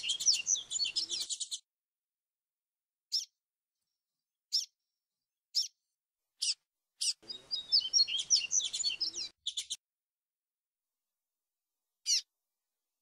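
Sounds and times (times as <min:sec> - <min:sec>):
bird twittering song: 0:00.0 - 0:01.6, 0:03.1 - 0:03.4, 0:04.5 - 0:04.8, 0:05.5 - 0:05.8, 0:06.4 - 0:09.8, 0:12.0 - 0:12.3
bird chirps: 0:00.0 - 0:01.7, 0:03.1 - 0:03.4, 0:04.5 - 0:04.8, 0:05.5 - 0:05.8, 0:06.4 - 0:09.8, 0:12.0 - 0:12.3.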